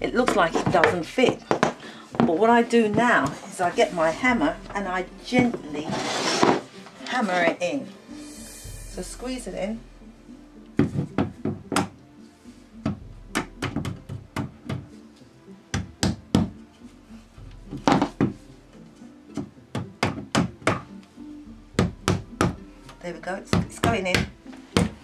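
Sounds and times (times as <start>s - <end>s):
hammer tapping wood: 19.4s - 20.9s, 21.8s - 22.6s.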